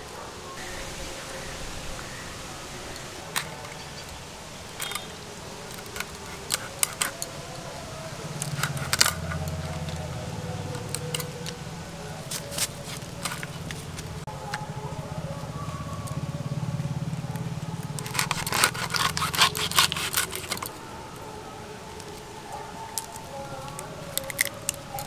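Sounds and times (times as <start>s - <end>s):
prawn shells clicking and snapping: 3.3s - 11.6s, 12.2s - 14.7s, 17.3s - 20.8s, 21.9s - 25.0s.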